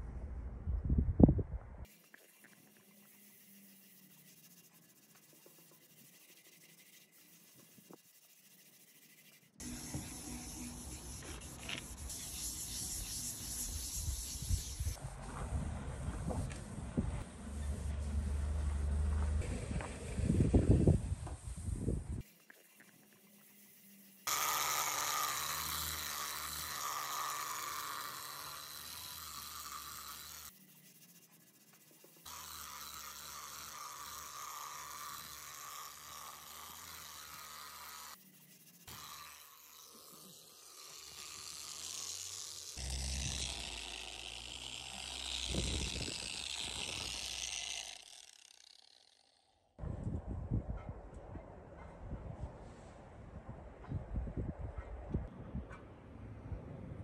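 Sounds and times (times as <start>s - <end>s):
polishing pad hissing: 1.9s - 15.0s, 21.5s - 48.9s
electric polisher whirring: 9.6s - 15.0s, 24.2s - 30.5s, 32.2s - 38.2s, 38.8s - 49.4s.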